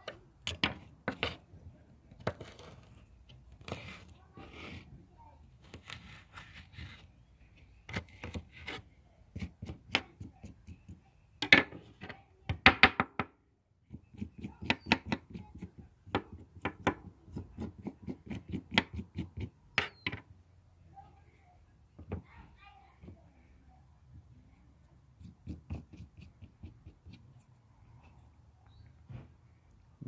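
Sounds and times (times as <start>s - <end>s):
knife scraping and cutting cactus: 2.2s - 4.9s, 5.6s - 11.0s, 13.9s - 20.1s, 25.2s - 28.3s.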